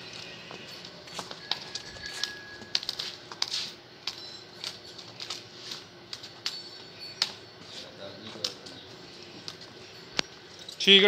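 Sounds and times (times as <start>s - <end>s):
hooves clopping on brick: 0.0s - 4.2s.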